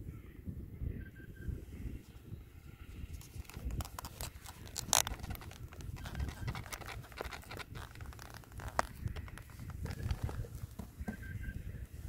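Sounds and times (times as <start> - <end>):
plastic clicks and scrapes on foam: 3.1 - 11.2.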